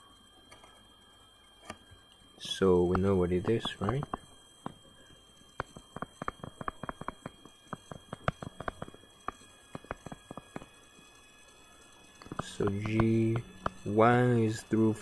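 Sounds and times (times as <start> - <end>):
stylus tapping on tablet screen: 5.6 - 10.7.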